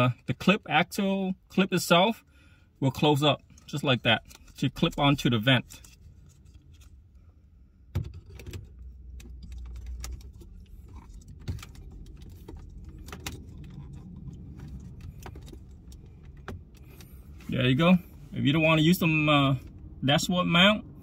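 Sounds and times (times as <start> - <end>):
low rumble: 8.8 - 17.4.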